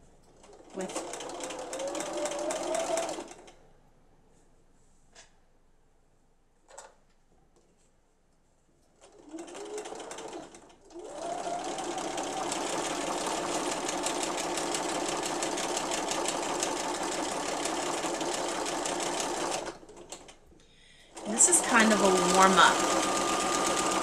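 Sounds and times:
sewing machine stitching: 0.3 - 3.6, 9.0 - 20.4, 21.1 - 24.0.

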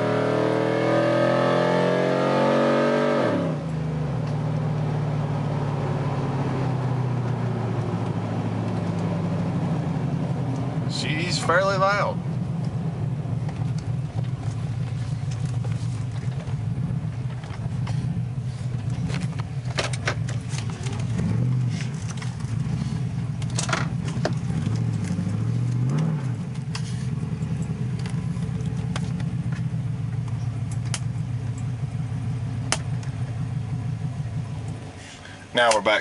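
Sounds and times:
loud truck engine revving: 0.0 - 4.0, 21.0 - 21.9, 24.1 - 26.4.

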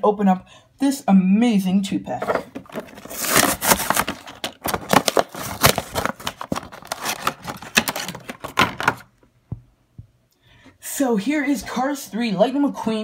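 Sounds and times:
plastic packaging crackling: 2.5 - 9.1.

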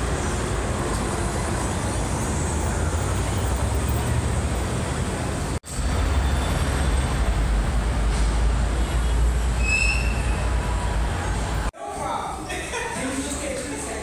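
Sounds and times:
city street traffic rumble: 0.0 - 14.0
short high squeal: 9.6 - 10.6.

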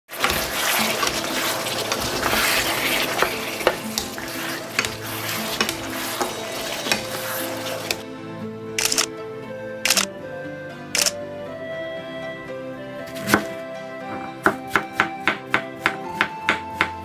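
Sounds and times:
meat sizzling in a pan: 0.1 - 8.0.

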